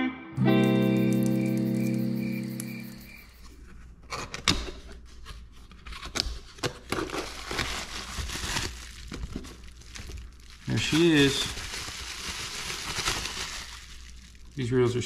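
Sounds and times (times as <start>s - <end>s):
packaging crinkling: 5.9s - 15.0s.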